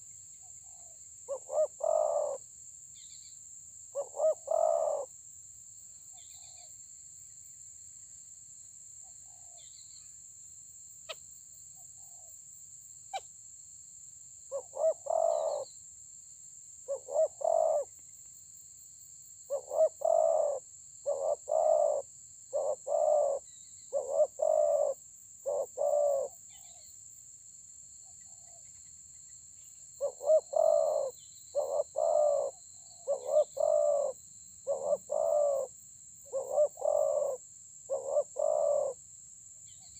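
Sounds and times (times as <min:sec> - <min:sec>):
doves cooing: 0:01.3 - 0:02.4, 0:04.0 - 0:05.1, 0:14.6 - 0:15.6, 0:16.9 - 0:17.9, 0:19.5 - 0:22.0, 0:22.6 - 0:23.4, 0:24.0 - 0:26.3, 0:30.0 - 0:35.7, 0:36.3 - 0:39.0.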